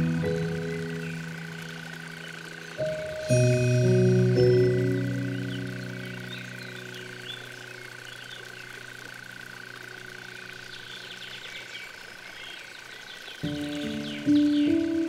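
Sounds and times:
soft background music: 0.0s - 8.7s, 13.5s - 15.0s
steady high drone: 0.0s - 12.4s
small birds chirping: 0.0s - 15.0s.

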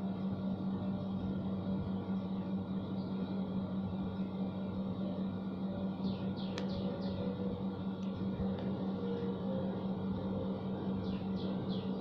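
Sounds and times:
steady low hum: 0.0s - 12.0s
bird chirps: 6.0s - 7.4s, 11.0s - 12.0s.

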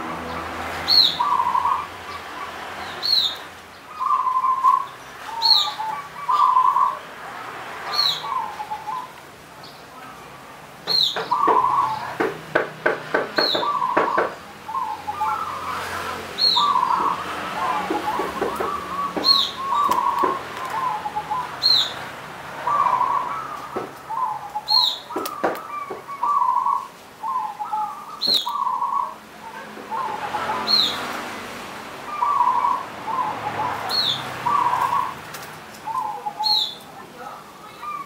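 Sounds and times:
dove cooing: 0.9s - 2.5s, 3.9s - 7.0s, 8.0s - 9.1s, 11.2s - 12.1s, 13.4s - 22.0s, 22.6s - 31.0s, 32.1s - 35.2s, 35.8s - 36.8s, 37.4s - 38.0s.

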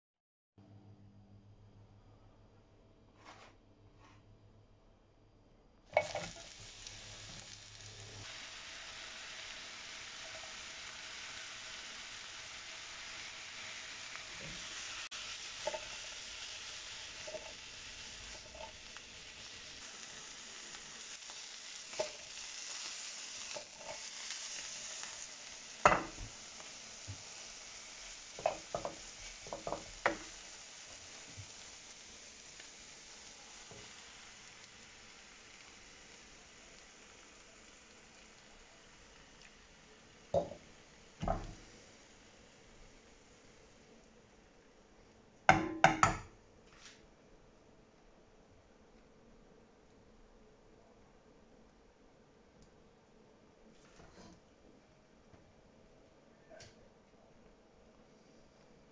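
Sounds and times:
food sizzling in butter: 5.9s - 44.0s.

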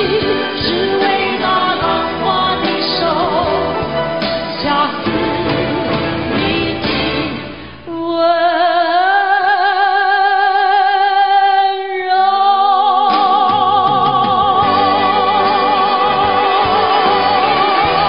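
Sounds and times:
band playing: 0.0s - 7.8s, 13.1s - 18.0s
man and woman singing a ballad: 0.0s - 18.0s.

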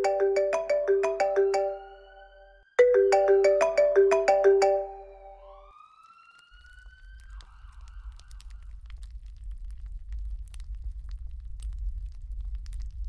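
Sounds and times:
phone alarm ringtone: 0.0s - 5.6s.

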